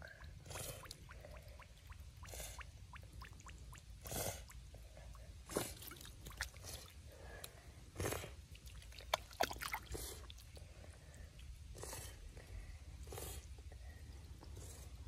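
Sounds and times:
water sloshing in puddle: 5.6 - 7.0, 8.6 - 10.5
mud squelching: 8.5 - 10.8.

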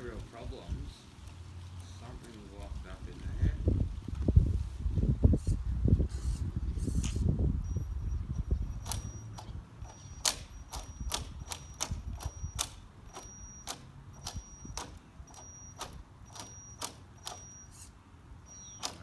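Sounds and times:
jammed motor clicking: 8.8 - 17.6, 18.6 - 19.0.

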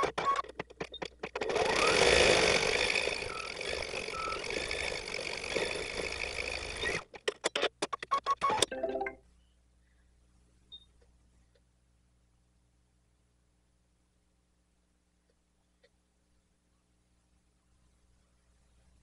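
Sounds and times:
embroidery machine whirring: 1.2 - 7.1.

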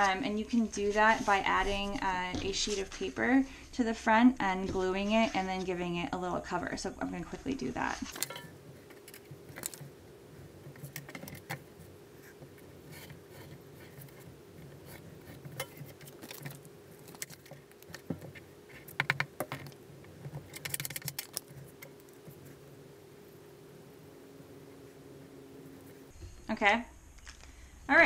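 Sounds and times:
ticking scrapes: 7.8 - 22.8
paper rustling: 7.9 - 22.6.

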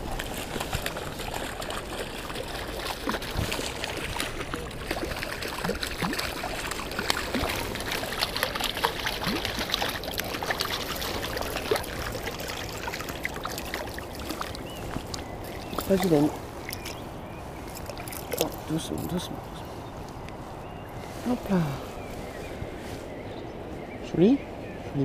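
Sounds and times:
fish splashing: 0.0 - 18.8
river water rushing: 0.0 - 19.6.

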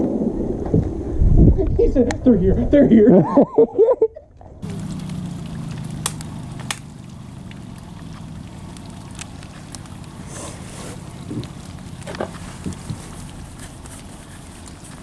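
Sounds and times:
outboard motor running: 4.6 - 15.0
water wash: 4.6 - 15.0.

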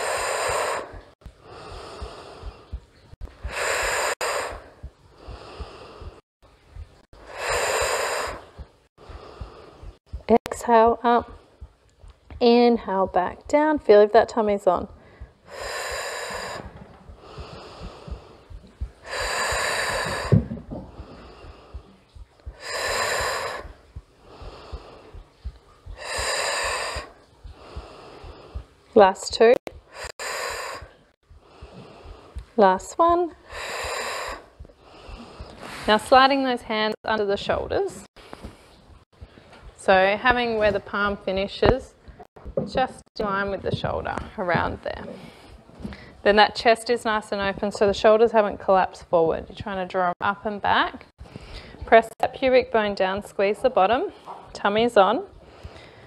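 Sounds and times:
woman exhaling breathily: 0.0 - 2.7, 3.4 - 6.2, 7.3 - 8.6, 15.0 - 18.3, 19.0 - 21.8, 22.5 - 25.2, 25.9 - 28.6
woman inhaling quietly: 0.0 - 2.8, 3.4 - 6.2, 7.3 - 10.0, 15.0 - 28.7, 33.4 - 35.9.

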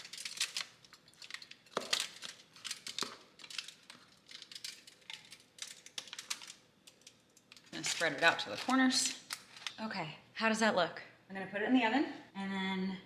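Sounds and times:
parchment paper crinkling: 0.0 - 9.8.

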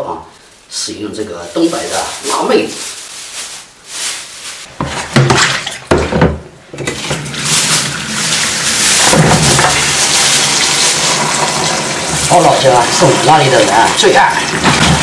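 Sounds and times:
plastic bag rustling: 0.3 - 5.8, 6.9 - 12.8
knocks against sink: 4.8 - 6.4
tap water running into basin: 6.8 - 15.0.

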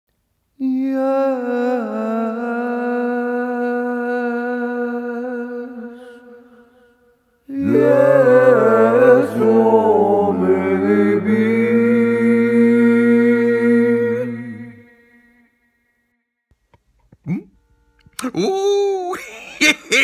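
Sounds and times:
choir chanting: 7.5 - 15.4.

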